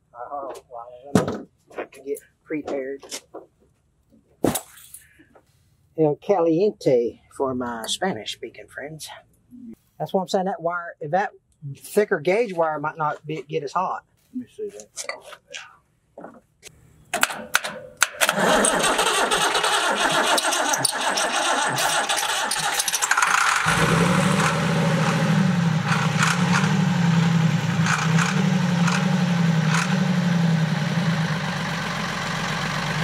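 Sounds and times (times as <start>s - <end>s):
diesel engine cranking: 18.1s - 33.0s
diesel engine running: 18.3s - 33.0s.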